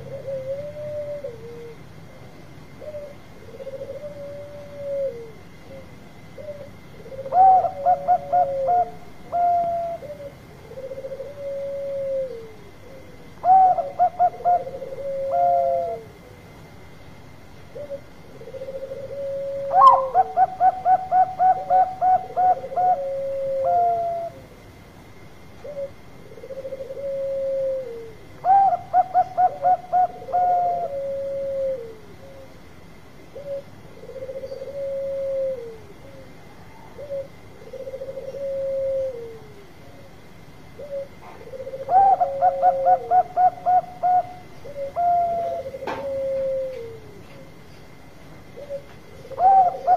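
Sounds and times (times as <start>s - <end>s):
low falling dove coos: 0.0s - 16.6s, 17.6s - 49.9s
doves stuttering coos: 17.7s - 24.5s, 40.8s - 47.6s, 48.6s - 49.9s.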